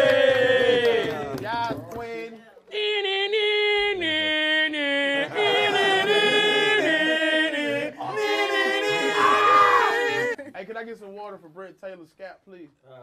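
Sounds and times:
people singing long held notes: 2.7 - 10.4.

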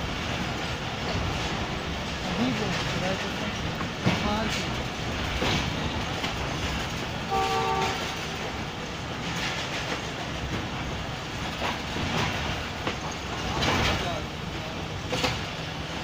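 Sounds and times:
train running noise: 0.0 - 16.0
wheels clacking over rail joints: 0.0 - 16.0
locomotive horn: 7.3 - 8.6.

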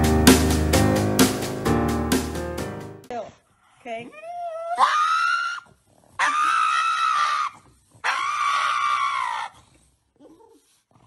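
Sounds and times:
dog screaming: 4.6 - 9.6.

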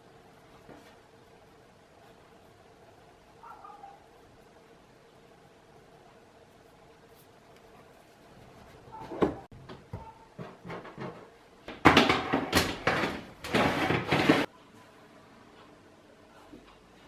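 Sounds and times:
metal baking tray scraping: 12.4 - 14.5.

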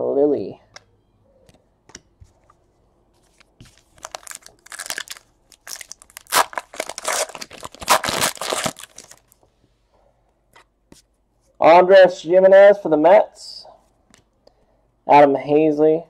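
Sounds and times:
foil wrapper tearing and crinkling: 3.7 - 9.4.

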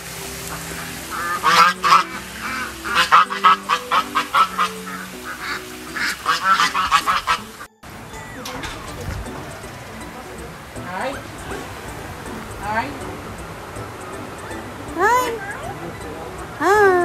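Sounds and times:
waterfowl honking: 0.2 - 7.7.

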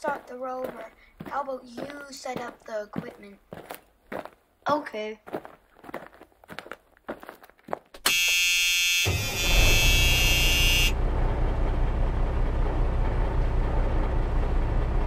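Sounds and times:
loud electronic buzzing tone: 8.0 - 11.0
low engine rumble: 9.4 - 15.0.

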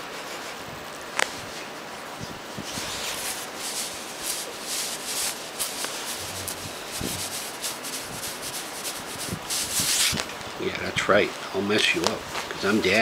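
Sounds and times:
hand rubbing fur on fabric: 2.6 - 10.3.

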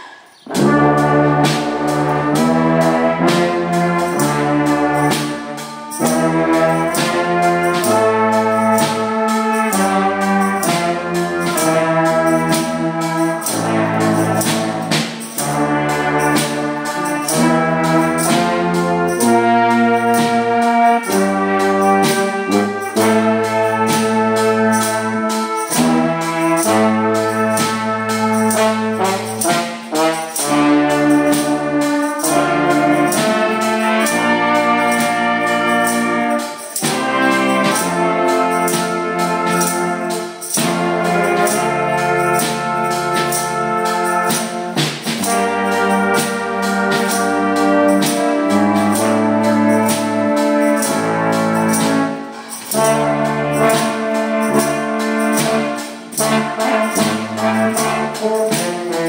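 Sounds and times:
snare drum and cymbal beat: 0.0 - 59.0
trumpets and trombones: 0.0 - 59.0
tuba bass line: 0.0 - 59.0.

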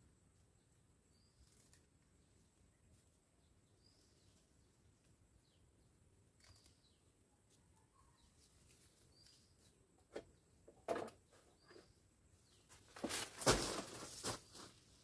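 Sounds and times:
faint bird chirps: 0.4 - 10.5
leaves rustling: 1.1 - 3.2, 12.7 - 15.0.

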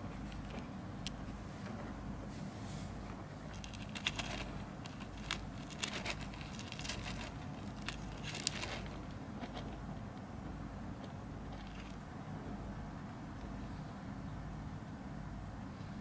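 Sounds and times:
steady low hum: 0.0 - 16.0
frogs scratching through soil: 3.5 - 9.8.

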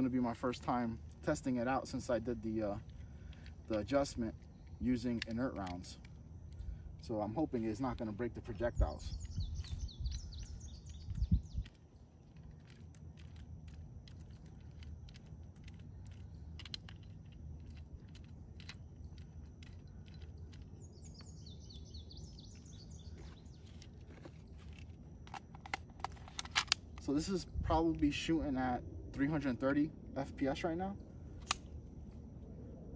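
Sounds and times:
low outdoor hum: 0.0 - 32.9
bird chirping: 7.7 - 12.9, 19.0 - 24.8
launcher clicks and rattles: 11.6 - 20.8, 24.6 - 27.1.

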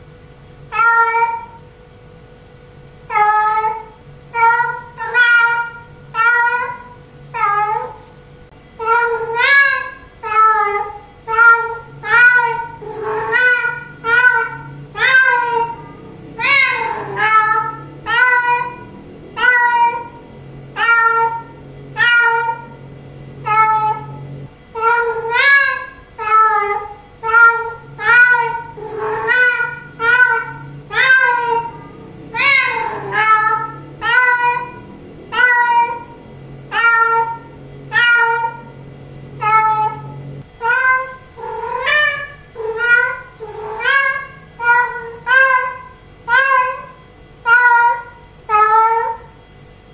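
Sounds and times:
faint low hum: 0.0 - 49.9
cat meowing: 0.7 - 1.6, 3.1 - 8.0, 8.8 - 38.8, 39.4 - 49.3
cat meowing loudly: 20.8 - 22.8, 23.4 - 38.8.

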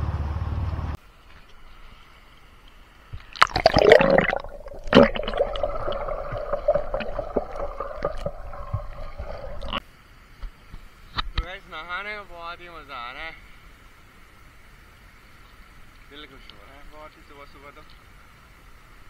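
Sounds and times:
river water splashing: 3.3 - 9.8
water gurgling: 3.3 - 9.8.

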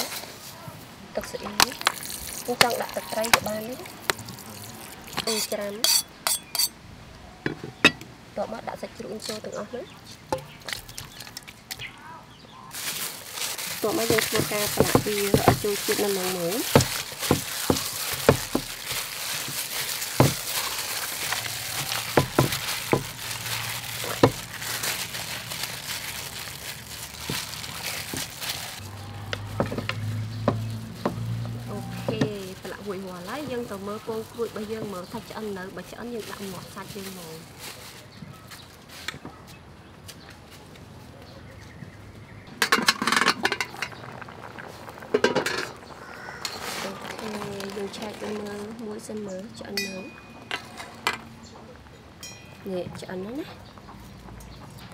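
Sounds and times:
plastic glove rustling: 1.2 - 5.7, 12.7 - 39.1, 46.2 - 49.4
wet squishing of meat: 1.6 - 5.3, 12.7 - 35.3
metal tongs clanking on pot lid: 5.3 - 6.8.

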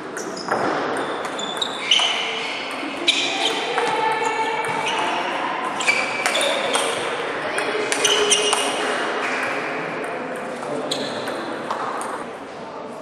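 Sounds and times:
ball bouncing on table: 0.2 - 5.1.

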